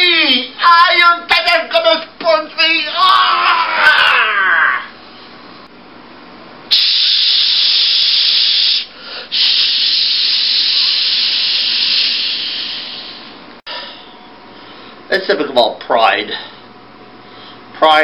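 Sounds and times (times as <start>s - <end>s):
loud steady hiss: 6.7s - 13.6s.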